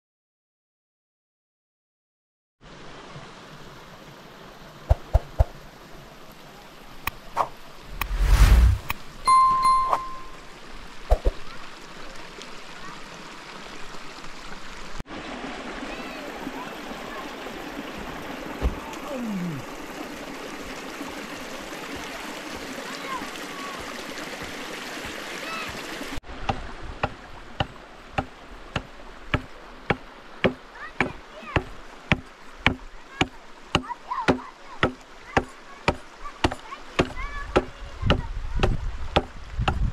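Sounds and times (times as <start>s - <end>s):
steady outdoor hiss: 2.6s - 39.9s
steady rushing noise: 7.8s - 9.1s
low rumble: 7.9s - 9.0s
hatchet chopping wood: 26.5s - 32.8s, 33.8s - 39.9s.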